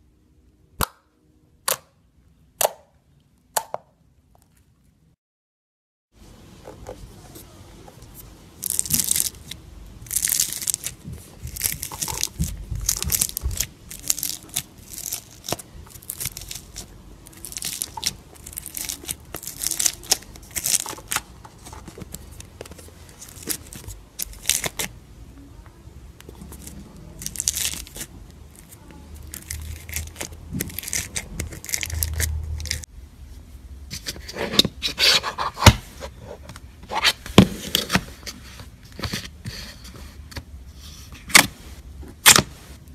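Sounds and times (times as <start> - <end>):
slime crackling and crunching: 8.6 - 24.9, 26.2 - 32.9.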